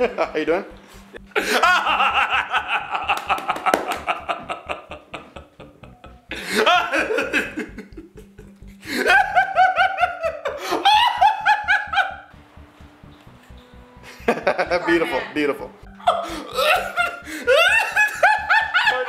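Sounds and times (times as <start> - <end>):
background music with low beat: 0.0 - 19.0
person laughing hard: 1.2 - 12.3, 14.1 - 14.9, 16.0 - 19.0.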